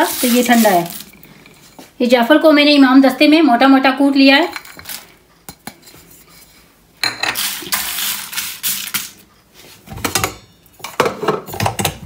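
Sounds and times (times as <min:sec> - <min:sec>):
spice seeds rattling in a bowl: 0:00.0 - 0:01.2, 0:07.4 - 0:09.2.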